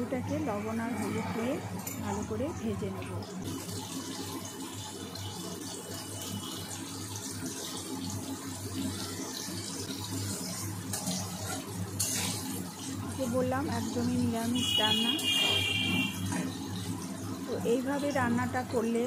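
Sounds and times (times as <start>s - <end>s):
potatoes sizzling in oil: 1.5s - 19.0s
spatula stirring: 10.1s - 14.1s.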